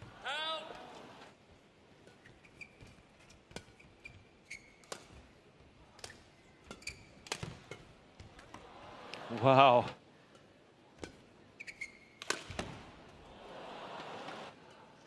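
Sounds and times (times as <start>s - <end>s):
shoes squeaking on court: 3.8s - 4.8s, 6.7s - 7.2s, 11.6s - 12.1s
rackets striking shuttlecock: 12.2s - 12.8s.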